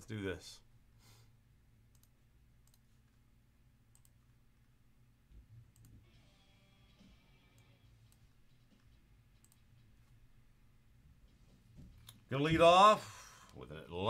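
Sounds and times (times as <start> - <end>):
faint clicks: 1.9 - 2.8, 3.9 - 4.2.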